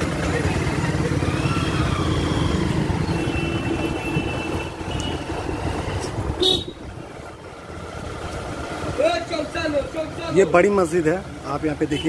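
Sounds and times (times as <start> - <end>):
motorcycle engine running: 0.0 - 9.0
street traffic: 0.0 - 12.0.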